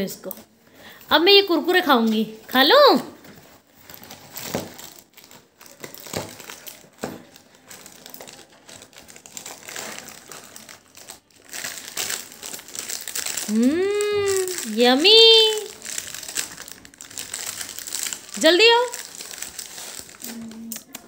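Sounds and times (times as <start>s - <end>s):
plastic snack packet crinkling: 3.4s - 21.0s.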